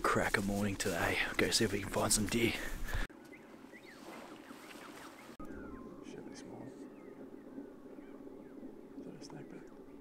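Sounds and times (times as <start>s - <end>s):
faint bird chirps: 3.2s - 10.0s.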